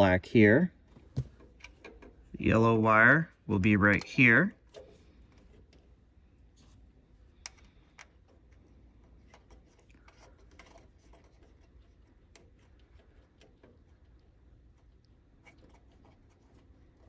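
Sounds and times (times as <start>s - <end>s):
small clicks of wires: 7.4s - 8.7s.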